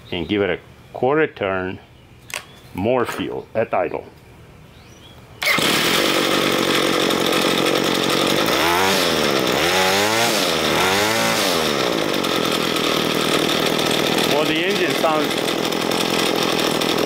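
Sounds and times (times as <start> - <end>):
string trimmer engine revving: 5.4 - 17.0.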